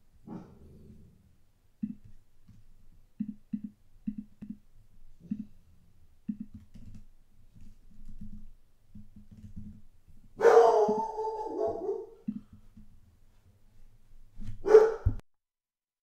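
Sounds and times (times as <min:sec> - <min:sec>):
dog barking: 0:00.3 - 0:00.6, 0:10.4 - 0:12.2, 0:14.6 - 0:15.2.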